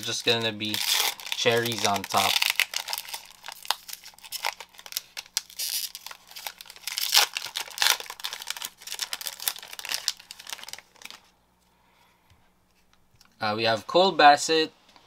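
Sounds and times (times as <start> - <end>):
wrapper tearing and crinkling: 0.0 - 11.3.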